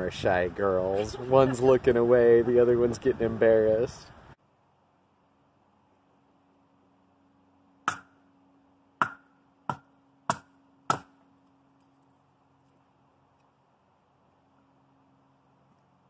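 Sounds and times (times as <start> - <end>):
hatchet chopping firewood: 7.8 - 8.2, 9.0 - 11.2.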